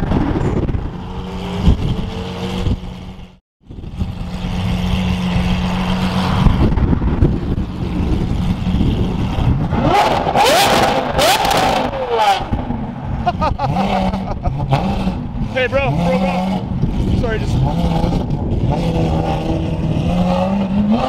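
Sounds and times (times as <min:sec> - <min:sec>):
car engine droning: 0:00.0 - 0:21.0
engine revving with crackles: 0:00.0 - 0:21.0.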